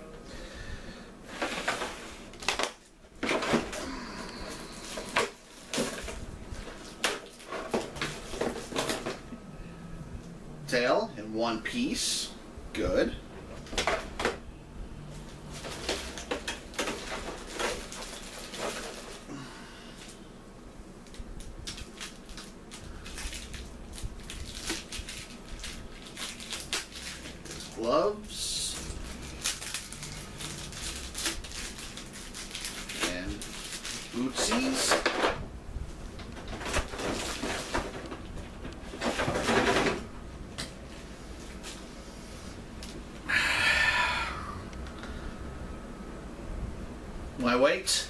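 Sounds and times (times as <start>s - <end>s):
plastic bag crinkling: 1.3s - 9.2s, 15.2s - 20.2s, 21.0s - 35.4s, 36.0s - 40.1s.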